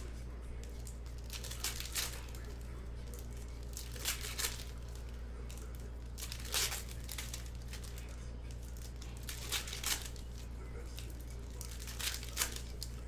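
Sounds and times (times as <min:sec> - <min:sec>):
steady low hum: 0:00.0 - 0:13.0
wrappers tearing and crinkling: 0:00.6 - 0:13.0.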